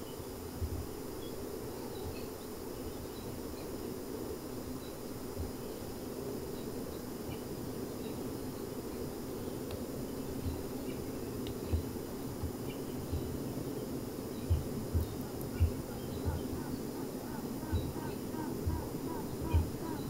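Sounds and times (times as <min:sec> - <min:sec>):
bee colony humming: 0:00.0 - 0:20.0
queen bee piping: 0:00.2 - 0:20.0
low thumps: 0:14.4 - 0:16.6.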